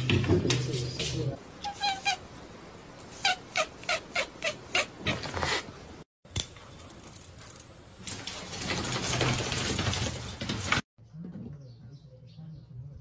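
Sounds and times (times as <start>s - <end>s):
loud rustling: 8.0s - 10.8s.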